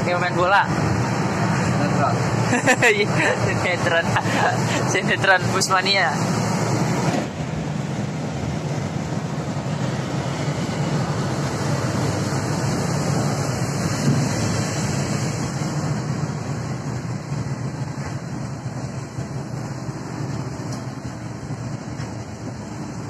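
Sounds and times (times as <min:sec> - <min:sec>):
bus engine and road noise: 0:00.0 - 0:23.0.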